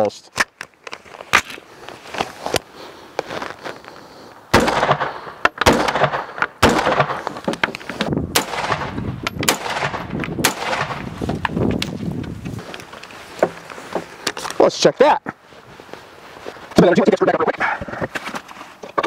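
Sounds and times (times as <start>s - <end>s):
rifle shots: 4.5s - 7.4s, 8.3s - 11.1s.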